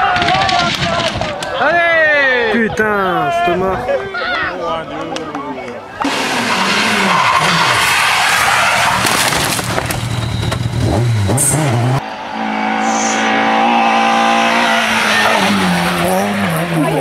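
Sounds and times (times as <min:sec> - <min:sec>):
rally car approaching: 0:06.0 - 0:17.0
rally car engine revving: 0:06.0 - 0:17.0
car hitting wooden barrier: 0:08.1 - 0:10.8.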